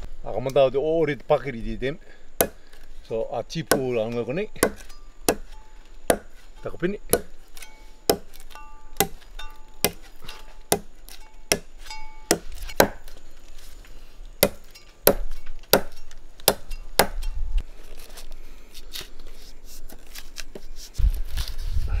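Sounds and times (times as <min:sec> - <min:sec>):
machete chopping tree trunk: 0:02.4 - 0:02.9, 0:03.6 - 0:13.2, 0:14.4 - 0:17.3.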